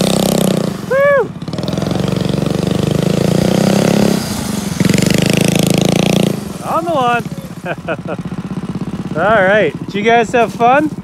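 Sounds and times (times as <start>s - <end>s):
small gas engine running: 0.0s - 11.0s
person shouting: 0.9s - 1.4s.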